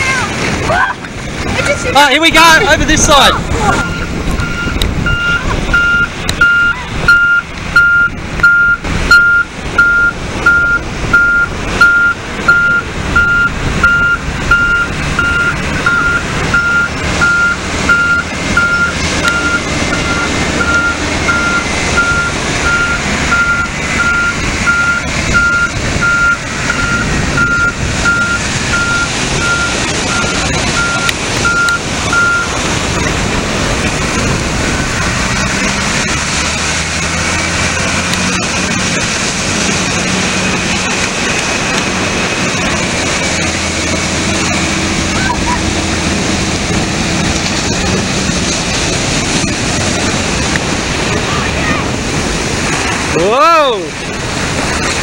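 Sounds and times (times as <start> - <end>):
surf breaking: 0.0 - 55.0
truck engine: 0.0 - 55.0
truck reversing alarm beeping: 2.9 - 32.7.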